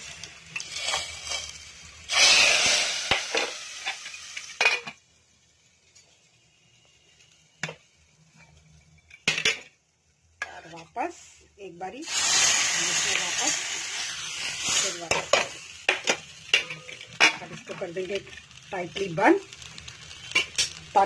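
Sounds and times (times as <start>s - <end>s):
hot oil sizzling: 0.0s - 21.0s
metal pan clinking: 16.0s - 17.5s.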